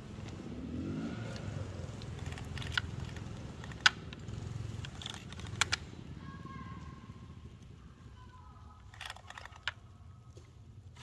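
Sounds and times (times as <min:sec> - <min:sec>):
chainsaw starter rope pull: 0:02.1 - 0:05.8.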